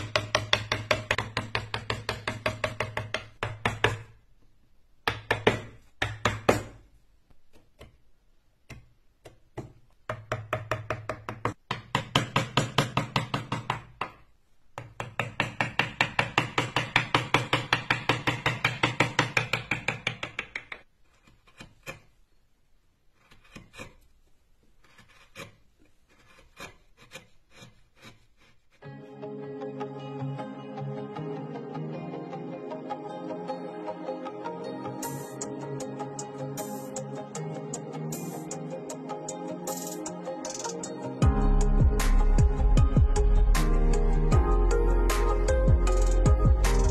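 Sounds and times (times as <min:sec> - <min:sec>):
rapid gouge tapping on wood: 0:00.0 - 0:04.1, 0:08.7 - 0:22.1
sharp carving clicks and cuts: 0:14.8 - 0:22.3, 0:23.1 - 0:24.2, 0:24.8 - 0:28.6.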